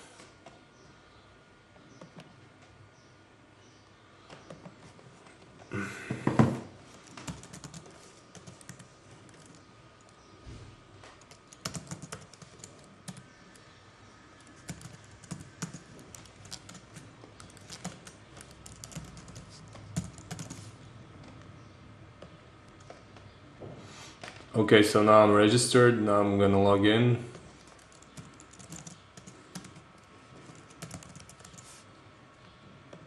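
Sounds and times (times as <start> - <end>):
computer keyboard typing: 7.0 - 10.2, 11.0 - 13.4, 14.4 - 20.7, 27.6 - 31.8.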